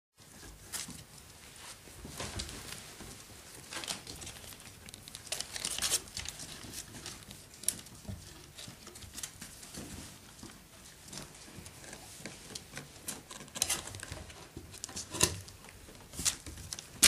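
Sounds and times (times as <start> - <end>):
puppy rustling on fleece bedding: 8.4 - 11.2.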